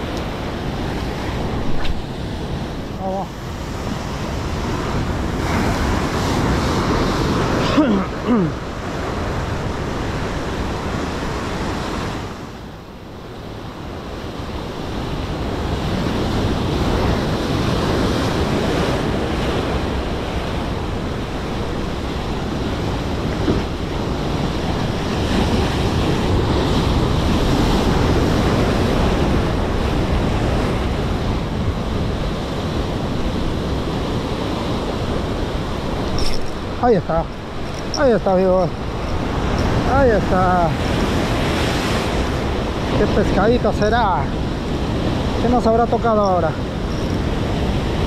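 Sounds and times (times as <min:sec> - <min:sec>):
wind buffeting microphone: 0:13.5 - 0:48.0
surf breaking on rocky shore: 0:15.1 - 0:48.0.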